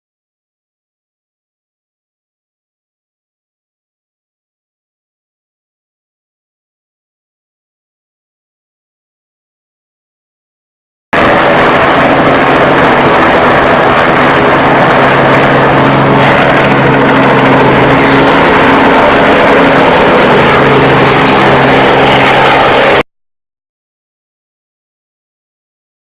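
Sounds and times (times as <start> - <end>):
helicopter engine and rotors: 11.2 - 23.1.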